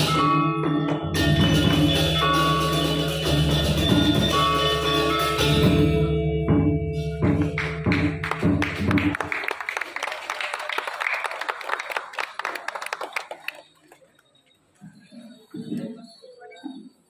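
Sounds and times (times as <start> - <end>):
metallophones and gongs ringing: 0.0 - 8.2.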